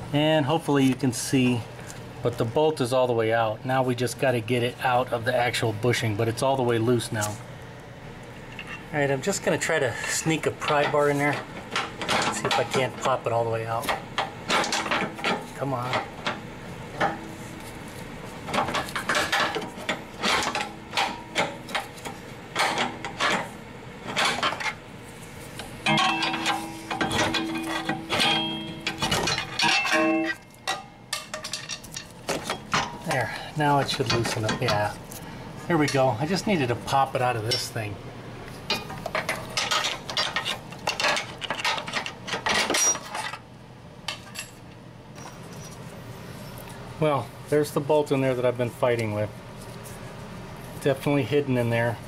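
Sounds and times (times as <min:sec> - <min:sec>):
metal tools clinking and scraping: 0:08.5 - 0:08.9, 0:09.9 - 0:16.4, 0:18.5 - 0:23.5, 0:24.1 - 0:24.8, 0:25.8 - 0:35.2, 0:37.4 - 0:37.8, 0:38.7 - 0:43.4.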